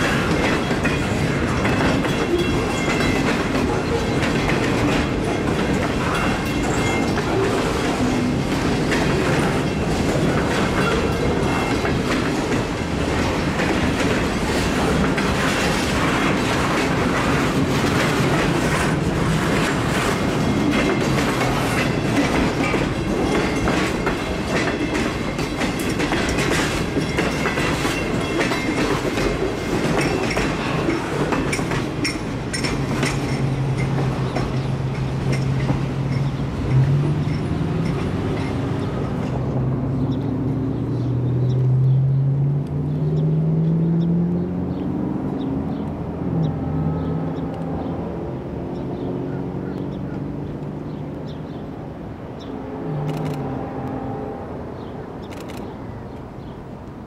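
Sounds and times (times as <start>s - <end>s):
train wheels clicking over rail joints: 0.0s - 40.2s
train rumble: 0.0s - 57.0s.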